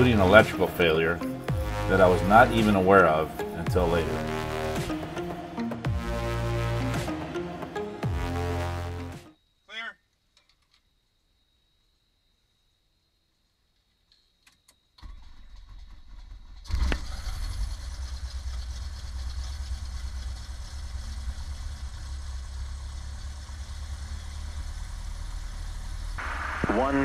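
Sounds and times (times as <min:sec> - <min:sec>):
aircraft engine idling: 0:00.0 - 0:08.2, 0:15.2 - 0:27.0.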